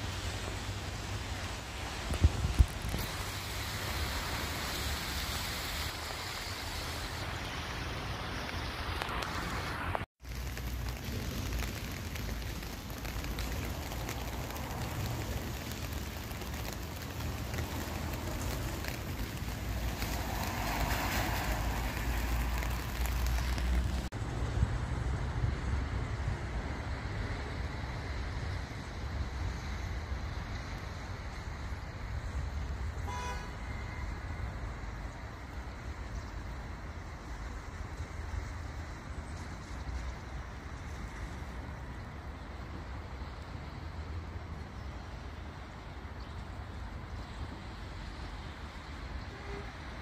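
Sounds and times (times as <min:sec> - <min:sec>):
traffic hiss on wet roads: 0:00.0 - 0:50.0
wind and rain: 0:00.0 - 0:50.0
wind buffeting microphone: 0:01.9 - 0:03.1.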